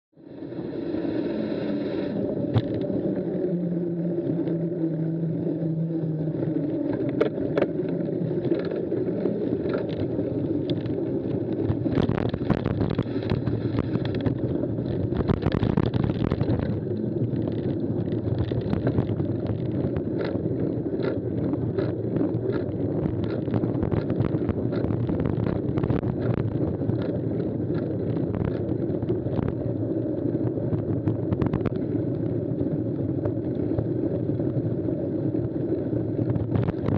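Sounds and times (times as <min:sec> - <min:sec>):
bike tyres rumbling on dirt: 0:02.2 - 0:36.9
clicks and knocks from bumps: 0:06.9 - 0:29.7, 0:30.7 - 0:32.2, 0:36.2 - 0:36.9.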